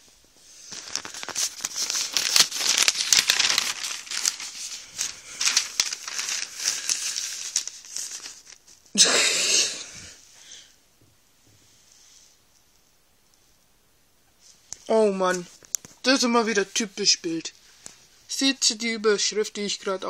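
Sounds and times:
newspaper pages rustling: 0:00.4 - 0:08.9.

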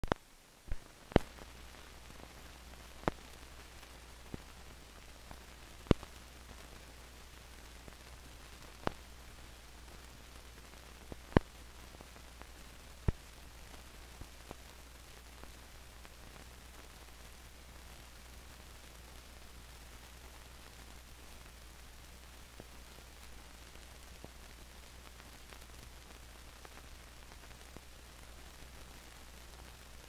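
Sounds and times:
clicks and pops: 0:00.0 - 0:01.5
film soundtrack hum and hiss: 0:00.0 - 0:30.0.

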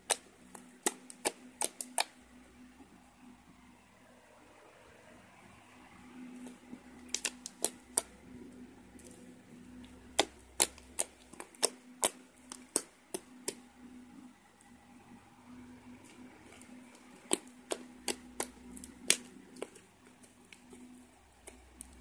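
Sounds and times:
slime clicking and popping: 0:00.0 - 0:02.2, 0:06.4 - 0:08.2, 0:09.8 - 0:13.7, 0:16.0 - 0:22.0
faint low hum: 0:00.0 - 0:22.0.

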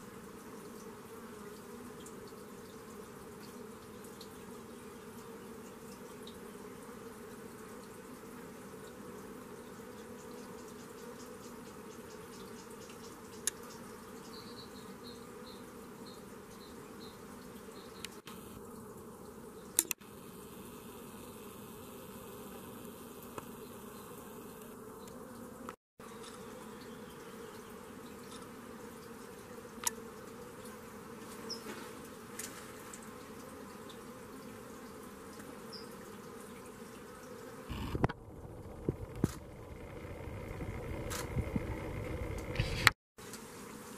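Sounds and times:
insects buzzing: 0:00.0 - 0:43.9
sharp clicks: 0:37.7 - 0:38.2.

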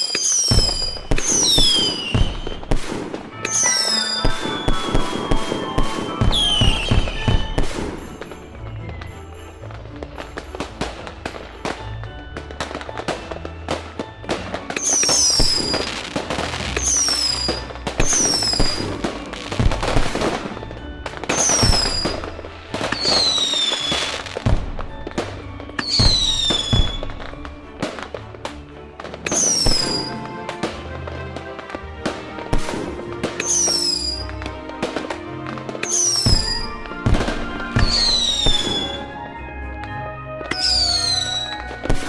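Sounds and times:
high falling whistles: 0:00.0 - 0:02.7, 0:03.5 - 0:07.8
fireworks bangs: 0:00.0 - 0:42.0
fireworks crackling and popping: 0:00.0 - 0:42.0.

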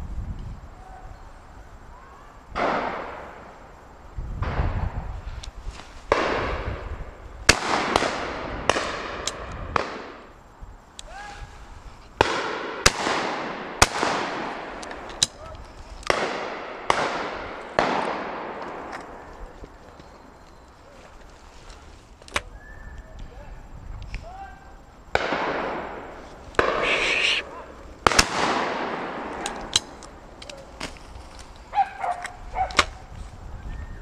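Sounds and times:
shotgun shots echoing: 0:12.2 - 0:15.1, 0:16.1 - 0:19.2, 0:25.1 - 0:27.4, 0:28.0 - 0:30.0.

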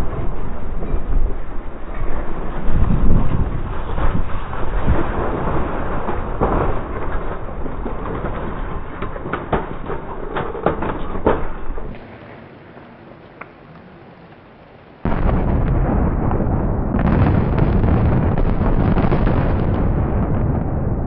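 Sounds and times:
explosion rumble: 0:00.0 - 0:12.2, 0:15.0 - 0:21.0
concrete debris landing: 0:02.8 - 0:11.9.

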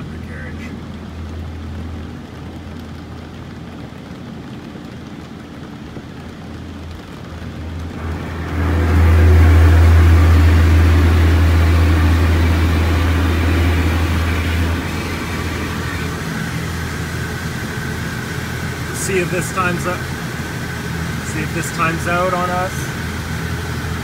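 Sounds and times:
car wash water jets spraying: 0:00.0 - 0:24.0
loud low rumble with hiss: 0:00.0 - 0:24.0.

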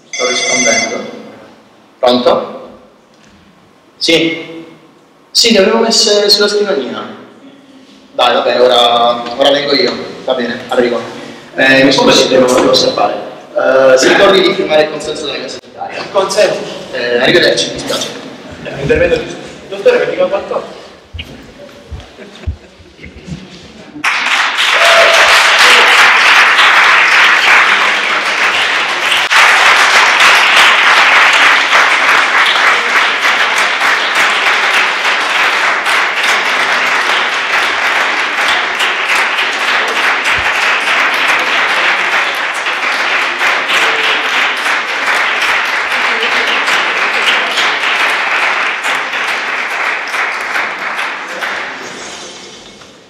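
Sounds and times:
audience applauding: 0:24.0 - 0:52.0.

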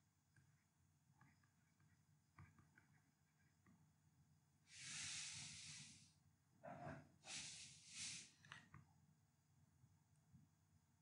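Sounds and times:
breathing close to microphone: 0:04.7 - 0:06.1, 0:07.2 - 0:08.4.

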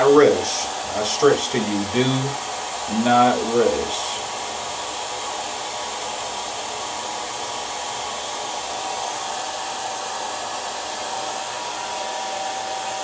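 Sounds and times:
hair dryer blowing air: 0:00.0 - 0:13.0.

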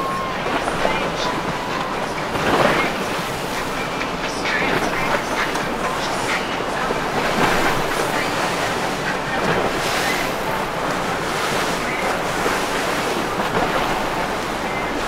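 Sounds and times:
surf and churning water: 0:00.0 - 0:15.0.

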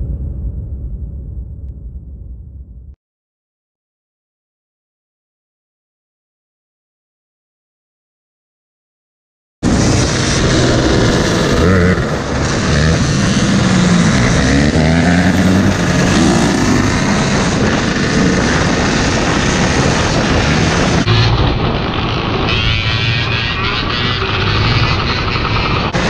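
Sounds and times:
dirt bike engine revving: 0:09.6 - 0:26.0
wind on microphone: 0:09.6 - 0:26.0.

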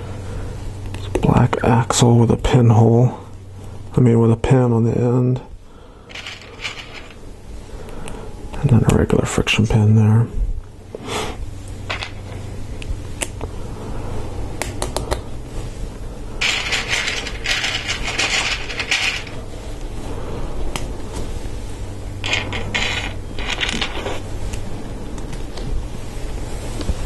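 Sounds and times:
plastic parts clattering: 0:06.1 - 0:07.2, 0:16.4 - 0:19.4.

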